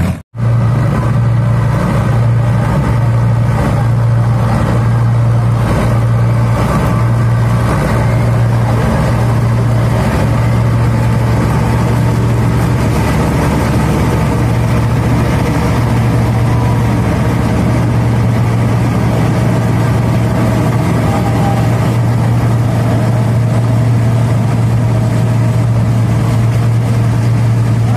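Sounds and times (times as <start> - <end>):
reaper machinery turning: 0.0 - 27.9
tractor diesel engine droning: 0.0 - 27.9.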